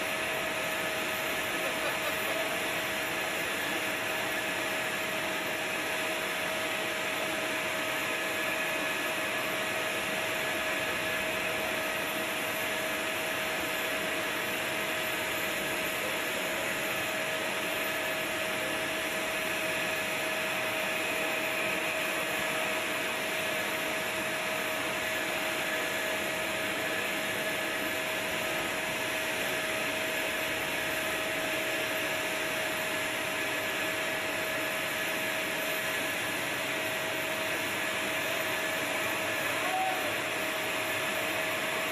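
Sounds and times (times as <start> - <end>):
turbine whine and hiss: 0.0 - 41.9.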